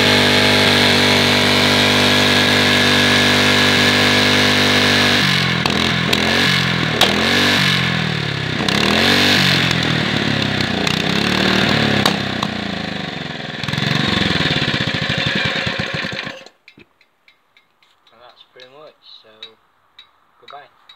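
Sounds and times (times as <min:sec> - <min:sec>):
small engine revving: 0:00.0 - 0:16.6.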